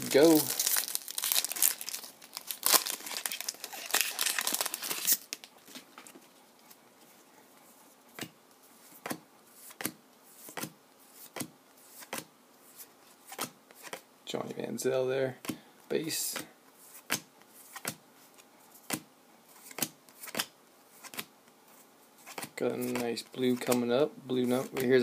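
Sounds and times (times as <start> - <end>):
wrapper crinkling and tearing: 0.0 - 5.6.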